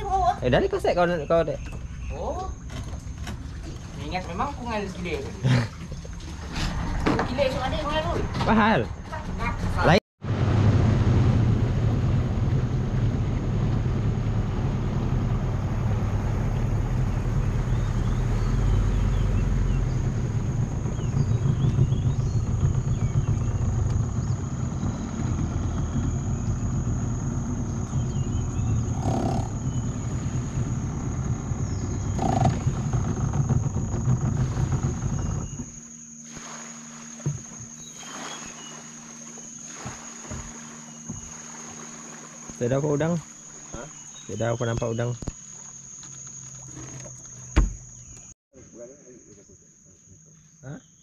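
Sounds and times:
small boat engine running: 0.0s - 48.4s
high insect whine: 12.9s - 51.0s.

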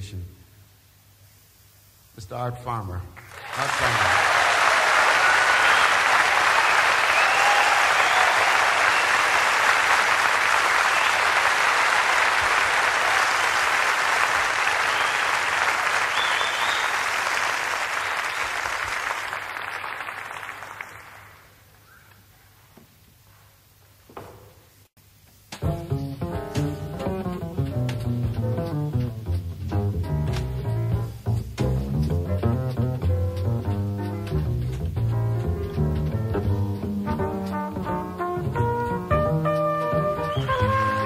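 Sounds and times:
audience applauding: 3.2s - 21.7s, 40.1s - 41.0s.

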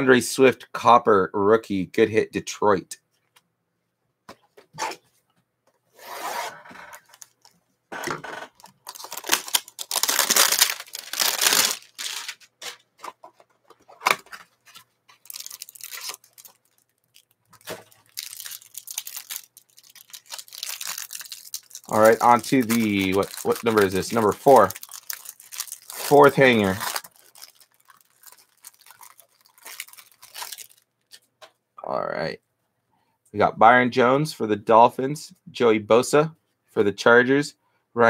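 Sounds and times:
plastic wrapping crinkling: 6.9s - 7.6s, 8.3s - 31.2s.

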